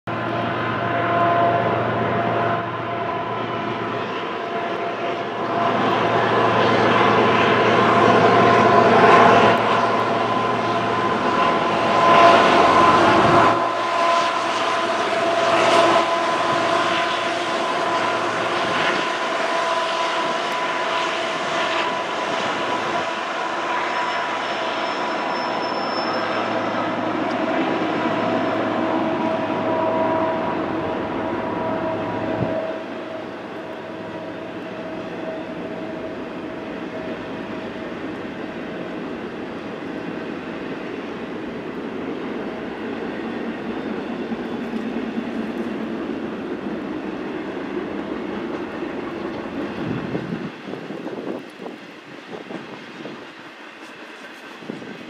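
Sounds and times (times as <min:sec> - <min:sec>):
locomotive engines whining: 0:00.1 - 0:55.0
locomotive low rumble: 0:24.5 - 0:55.0.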